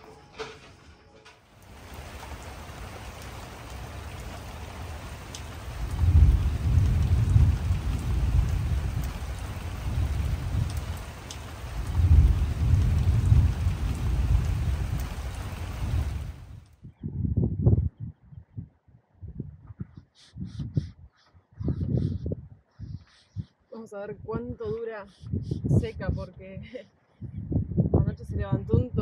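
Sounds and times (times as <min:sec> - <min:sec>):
heavy rain falling: 0:00.0 - 0:16.7
low rumbles of thunder: 0:01.6 - 0:17.9.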